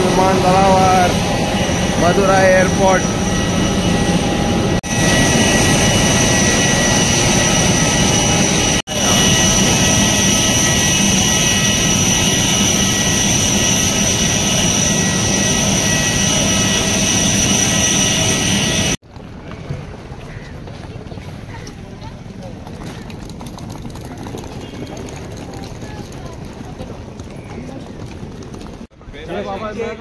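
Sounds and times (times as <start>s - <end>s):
jet engines running with whine: 0.0s - 19.6s.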